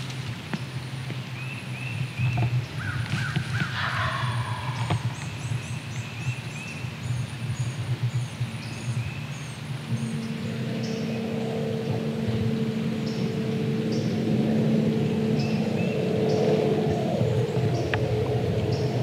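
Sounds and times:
songbirds chirping: 0:00.0 - 0:19.0
harsh bird call: 0:02.8 - 0:05.5.

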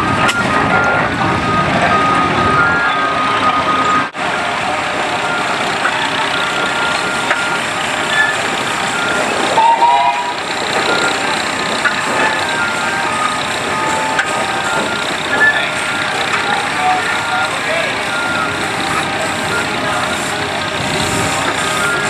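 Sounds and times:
steam traction engines running: 0:00.0 - 0:22.0.

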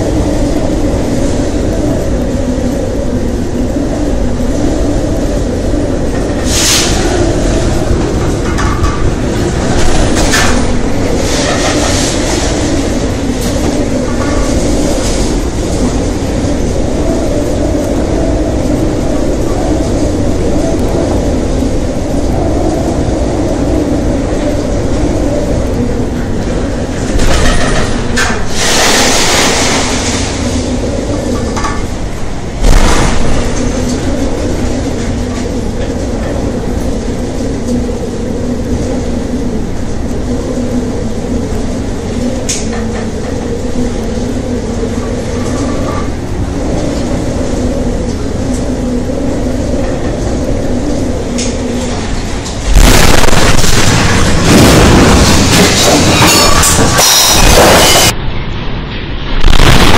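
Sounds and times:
ship engines droning: 0:00.0 - 0:59.9
storm: 0:00.0 - 0:59.9
rush of water: 0:27.1 - 0:35.2.

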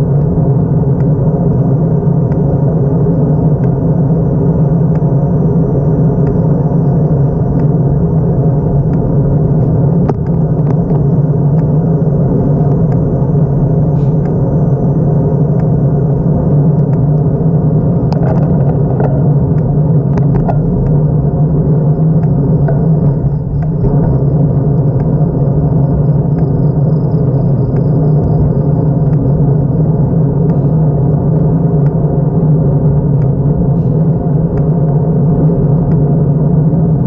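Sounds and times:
road rumble: 0:00.0 - 0:37.0
wind on microphone: 0:00.0 - 0:37.0
sharp clicks and rattles: 0:17.9 - 0:21.2.

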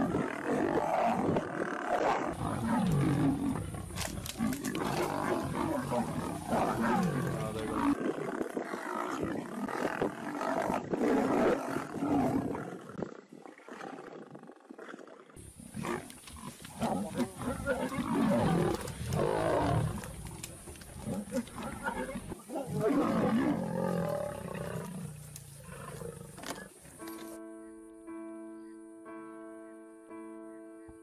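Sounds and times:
lions snarling and growling: 0:00.0 - 0:27.0.

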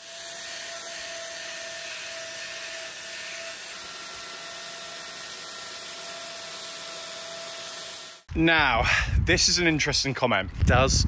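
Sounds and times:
angle grinder grinding hoof: 0:00.0 - 0:08.3.

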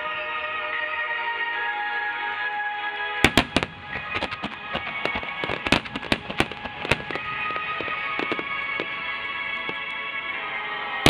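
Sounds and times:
music playing: 0:00.0 - 0:11.0
firework shells bursting: 0:03.2 - 0:10.1
firework crackling and popping: 0:03.2 - 0:11.0.

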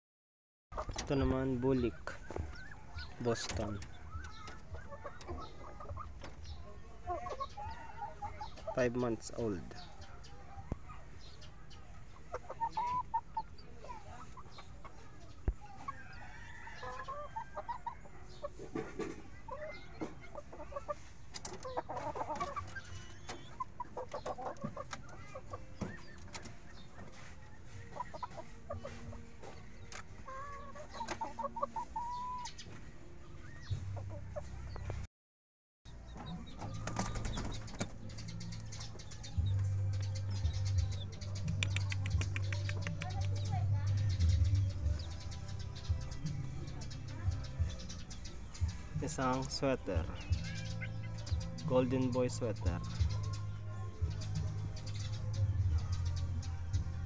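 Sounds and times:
chickens clucking: 0:00.7 - 0:35.1, 0:35.9 - 0:57.0.

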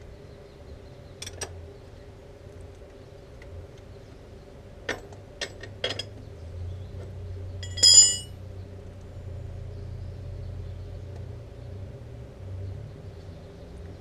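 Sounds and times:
ringing clink of metal on metal: 0:07.6 - 0:08.3.

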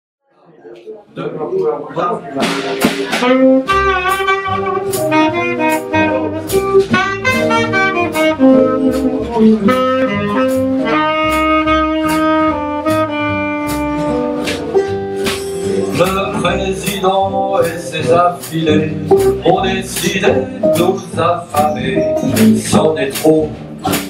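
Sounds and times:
drums keeping a beat: 0:02.2 - 0:24.0
guitar: 0:02.2 - 0:24.0
double bass: 0:02.3 - 0:24.0
saxophone melody: 0:03.0 - 0:16.0.

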